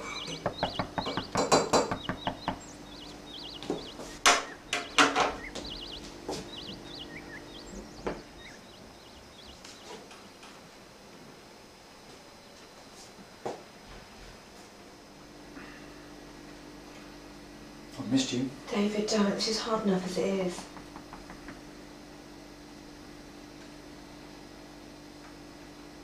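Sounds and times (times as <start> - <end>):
louder knocks: 0.0 - 2.7.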